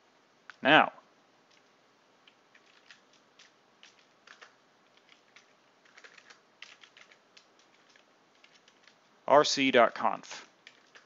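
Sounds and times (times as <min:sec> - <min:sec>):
typing on a computer keyboard: 0:01.5 - 0:09.0, 0:10.5 - 0:11.0.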